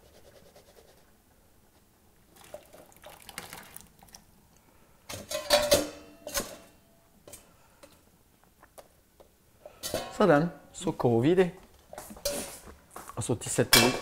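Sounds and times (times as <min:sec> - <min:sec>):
pots and utensils clattering: 0:05.1 - 0:07.4, 0:09.7 - 0:10.3, 0:12.2 - 0:12.6, 0:13.7 - 0:14.0
soft scraping and rustling: 0:11.7 - 0:13.3.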